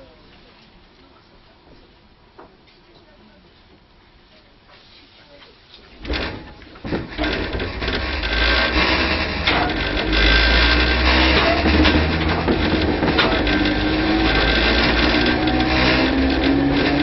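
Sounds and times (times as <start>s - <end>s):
train motor hum and gear whine: 6.0s - 17.0s
loud thud: 6.1s - 15.3s.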